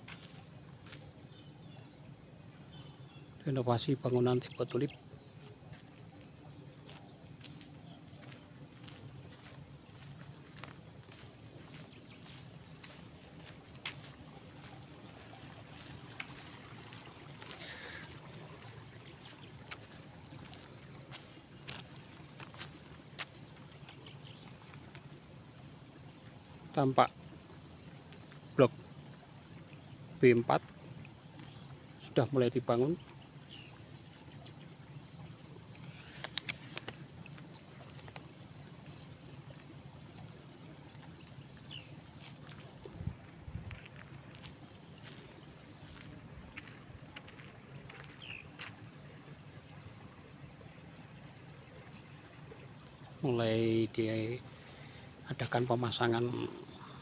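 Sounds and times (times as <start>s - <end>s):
footsteps on gravel: 0.0s - 1.1s, 5.3s - 23.4s, 42.1s - 49.0s
faint outdoor background noise: 0.0s - 57.0s.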